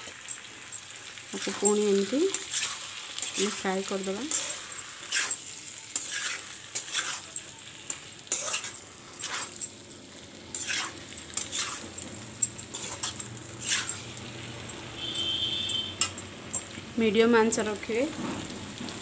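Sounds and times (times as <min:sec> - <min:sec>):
light sizzle of frying: 0:00.0 - 0:19.0
metal spatula scraping pan: 0:01.4 - 0:09.9, 0:10.5 - 0:14.2.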